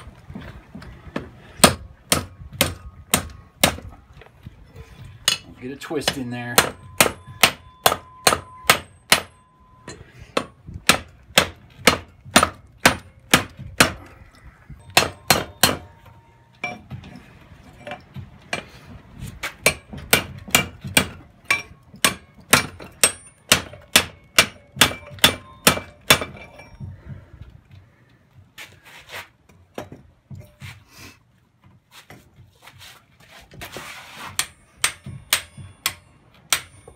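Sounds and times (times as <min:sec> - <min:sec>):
hammer striking steel on anvil: 0:05.2 - 0:14.0, 0:14.8 - 0:16.9, 0:19.6 - 0:26.8, 0:34.4 - 0:36.9.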